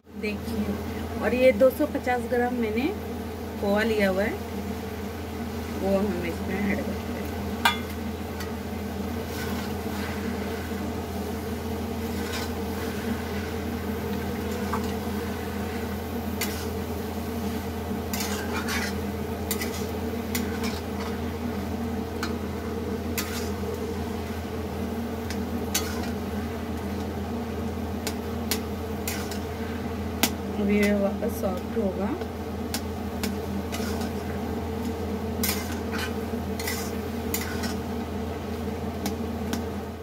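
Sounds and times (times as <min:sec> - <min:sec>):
steady low hum: 0:00.0 - 0:40.0
metal spatula scraping iron pan: 0:12.1 - 0:12.6, 0:18.1 - 0:21.1, 0:23.2 - 0:23.6, 0:25.7 - 0:26.2, 0:33.7 - 0:34.2, 0:35.4 - 0:37.8.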